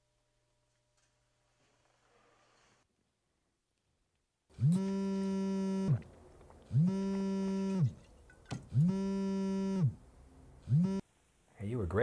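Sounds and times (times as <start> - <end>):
phone vibrating on hard surface: 6.7 - 8.0, 8.7 - 10.0, 10.7 - 11.0.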